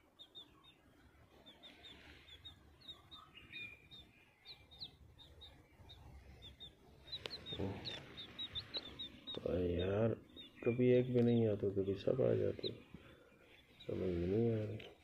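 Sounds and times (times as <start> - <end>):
chicks peeping: 0.0 - 15.0.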